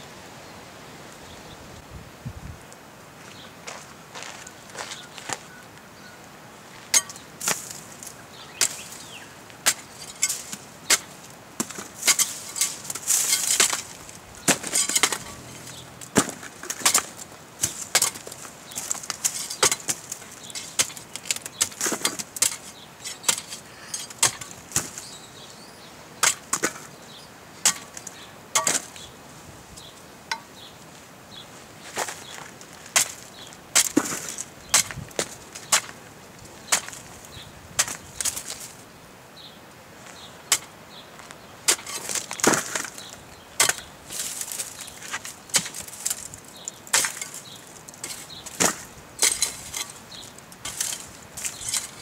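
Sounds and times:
shovel blade chopping cactus: 0:09.7 - 0:18.3, 0:18.9 - 0:25.1, 0:26.2 - 0:26.9, 0:27.6 - 0:28.0, 0:28.6 - 0:29.0, 0:33.8 - 0:35.9, 0:36.7 - 0:37.1, 0:37.8 - 0:38.6, 0:41.7 - 0:46.3, 0:46.9 - 0:52.0.

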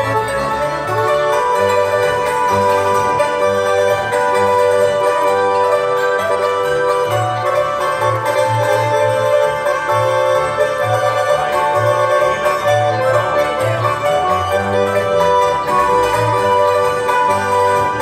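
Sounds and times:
accordion: 0:00.0 - 0:18.0
double bass beat: 0:00.0 - 0:18.0
hammered dulcimer: 0:00.0 - 0:18.0
violin: 0:00.0 - 0:18.0.

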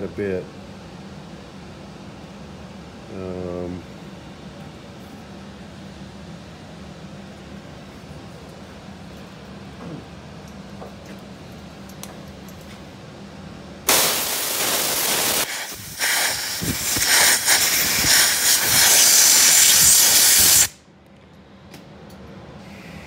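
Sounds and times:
compressed air blow gun hissing: 0:13.9 - 0:20.8
wind buffeting microphone: 0:15.8 - 0:17.1.

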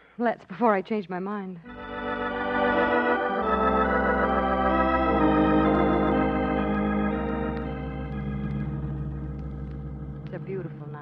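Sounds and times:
sustained organ chords: 0:01.6 - 0:11.0
low steady rumble: 0:07.4 - 0:11.0.

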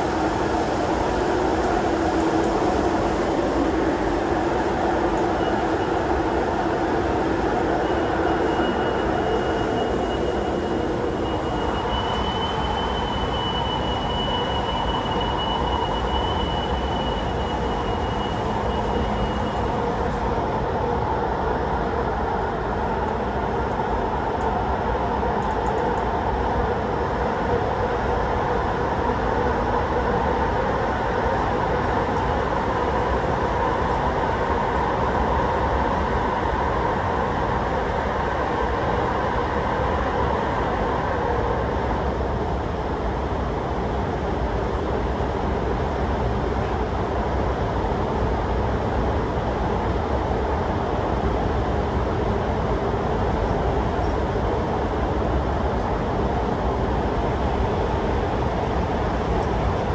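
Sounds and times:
thin high whine: 0:00.0 - 0:20.1
metro train rumbling: 0:00.0 - 0:59.9.

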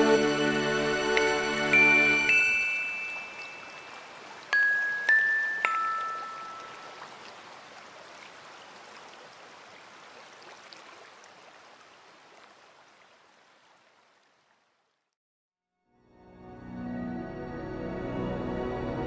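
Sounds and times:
river water rushing over rocks: 0:01.2 - 0:14.0.

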